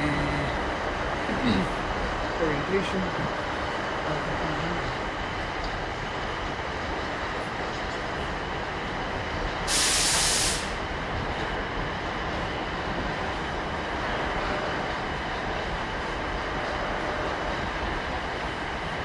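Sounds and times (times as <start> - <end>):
train rumbling: 0.0 - 19.0
loud hiss: 9.7 - 10.8.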